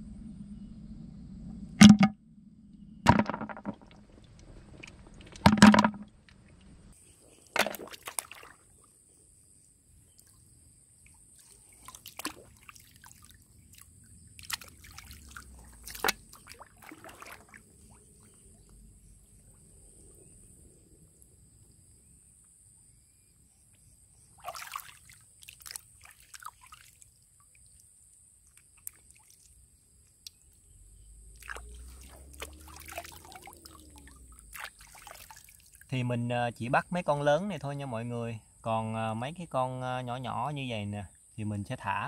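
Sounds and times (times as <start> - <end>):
sharp hits: 1.8 - 2.3
hands sloshing in muddy water: 7.3 - 8.8, 11.4 - 18.2, 24.4 - 27.0, 31.4 - 35.9.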